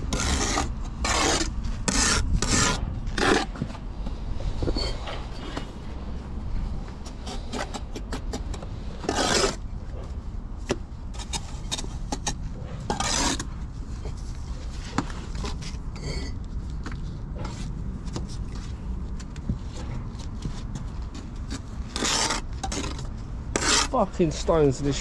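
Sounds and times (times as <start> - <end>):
trowel scraping mortar: 0.0 - 3.8, 7.2 - 9.6, 11.2 - 13.5, 21.4 - 24.5
low rumble: 1.6 - 7.4.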